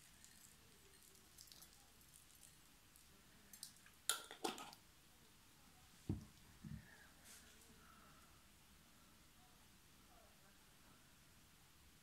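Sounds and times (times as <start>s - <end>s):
seeds sprinkled ticks and rustles: 0.0s - 4.0s.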